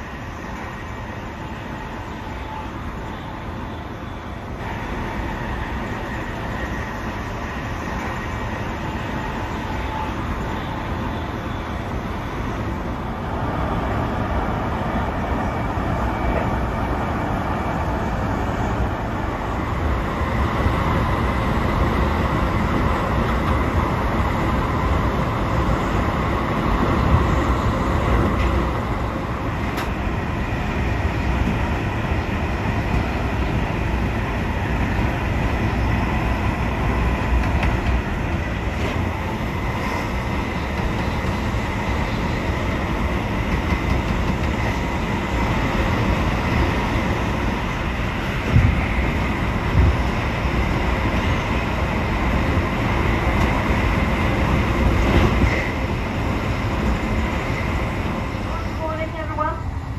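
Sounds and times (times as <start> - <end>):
train wheels rumbling on track: 0.0 - 59.9.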